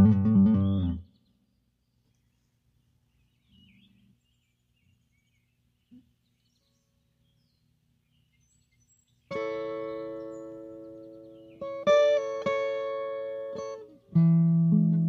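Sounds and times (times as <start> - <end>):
guitar and bass music: 0.0 - 1.0, 9.3 - 15.0.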